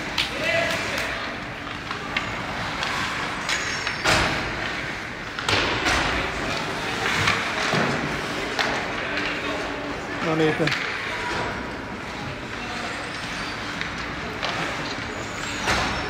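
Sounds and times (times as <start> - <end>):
sharp bangs against rink boards: 2.2 - 9.4.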